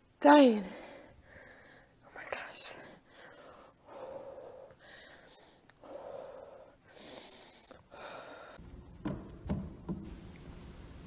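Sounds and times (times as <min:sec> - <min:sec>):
woman breathing heavily: 0:00.6 - 0:08.6.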